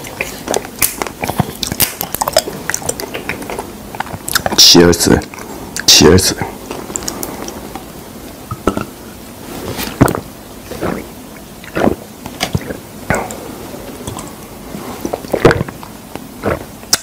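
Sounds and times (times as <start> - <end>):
person gulping water: 8.5 - 9.1, 10.0 - 17.0.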